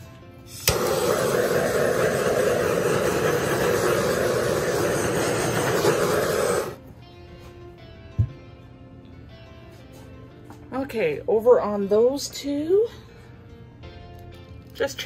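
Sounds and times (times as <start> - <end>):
torch flame burning: 0.5 - 6.8
torch lighting click: 0.5 - 6.8.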